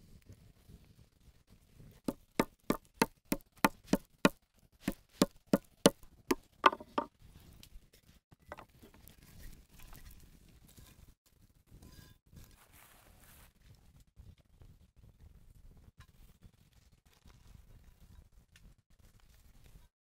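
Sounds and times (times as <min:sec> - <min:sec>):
meat mallet pounding on wooden board: 0:02.1 - 0:07.1.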